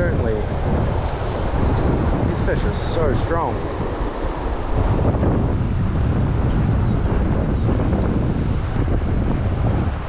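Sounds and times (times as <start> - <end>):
wind buffeting microphone: 0.0 - 10.0
river rapids rushing: 0.4 - 5.2.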